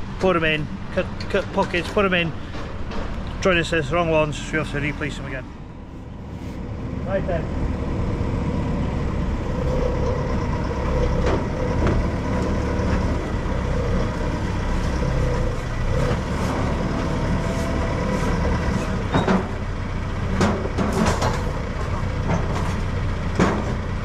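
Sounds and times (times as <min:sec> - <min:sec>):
diesel engine running: 0:00.0 - 0:24.0
sharp knocks: 0:11.1 - 0:12.6.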